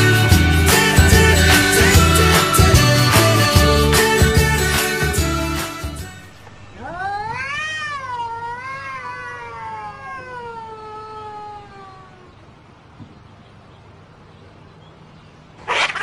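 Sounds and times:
background music: 0.0 - 6.3
cat yowling: 6.8 - 12.4.

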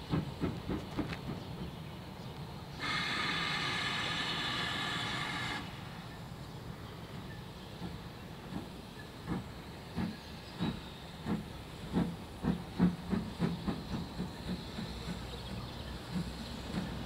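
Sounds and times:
steam locomotive exhaust chuffs: 0.0 - 2.0, 2.7 - 17.0
steady steam hiss: 0.0 - 17.0.

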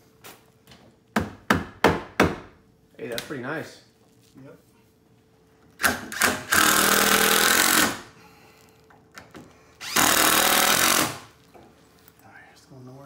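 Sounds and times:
impact driver driving screws: 5.8 - 8.0, 9.8 - 11.3.

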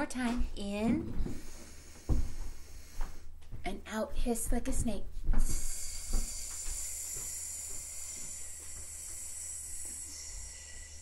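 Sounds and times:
woman hissing breath: 5.4 - 11.0.

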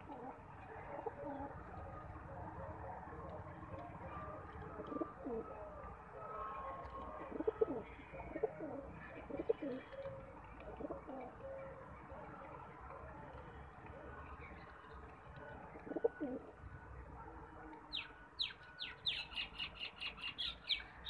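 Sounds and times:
pigeons cooing: 0.0 - 1.9, 2.6 - 5.8, 6.4 - 11.9, 15.4 - 16.5.

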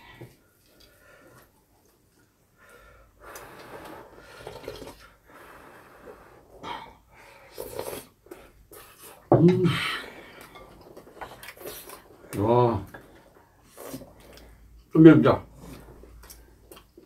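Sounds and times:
person slurping stew: 7.4 - 8.2
chewing: 10.4 - 14.6, 15.6 - 17.0.

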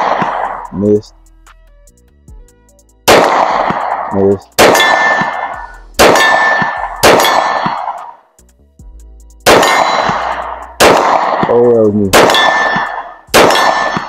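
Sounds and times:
pistol shots with metallic ringing: 0.0 - 0.7, 3.1 - 8.2, 9.4 - 14.0.

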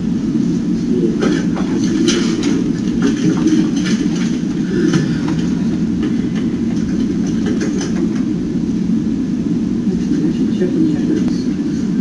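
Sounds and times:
classroom room rumble: 0.0 - 12.0.

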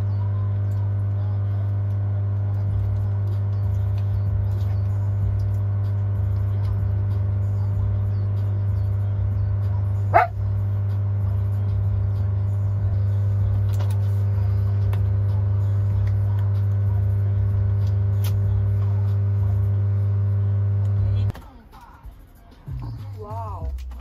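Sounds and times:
low hum: 0.0 - 21.3
dog yelp: 10.1 - 10.4.

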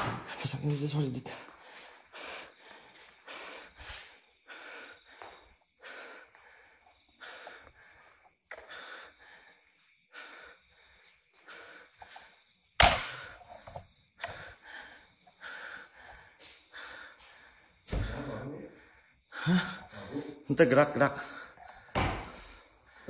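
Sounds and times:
person breathing heavily: 1.2 - 23.0.

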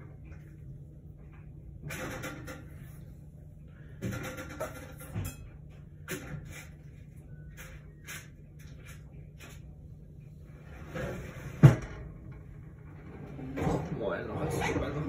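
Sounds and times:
cupboard scrape: 10.6 - 12.0.

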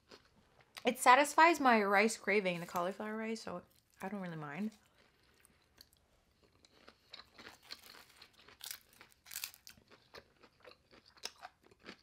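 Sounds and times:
person chewing crunchy food: 0.0 - 0.8, 4.7 - 12.0.

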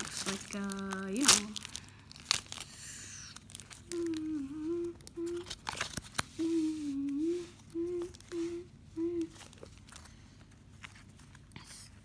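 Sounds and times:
cards and foil wrappers rustling: 0.0 - 6.7, 9.3 - 11.9
boy humming: 3.0 - 5.7, 6.3 - 9.7.

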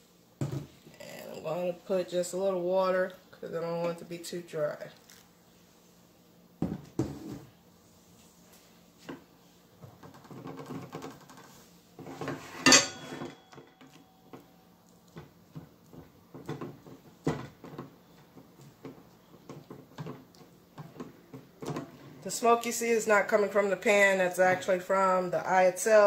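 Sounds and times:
sharp metal clank with ringing: 12.7 - 13.4.

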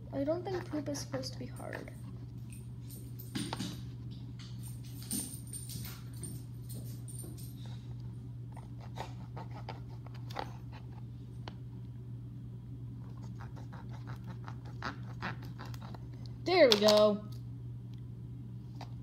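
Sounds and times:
steady low hum: 0.0 - 19.0
fingers scratching hard compound: 13.1 - 16.0.

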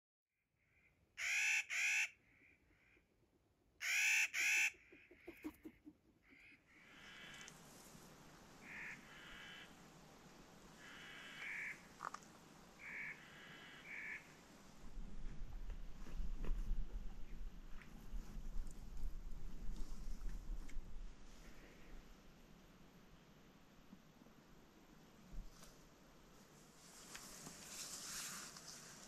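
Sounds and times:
bird giving harsh calls: 0.8 - 3.0, 3.8 - 7.5.

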